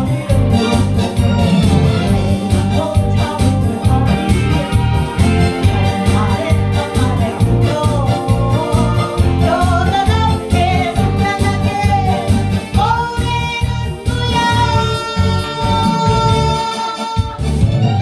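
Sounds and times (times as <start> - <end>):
woman singing through microphone: 0.0 - 17.5
backing music with steady beat: 0.0 - 18.0.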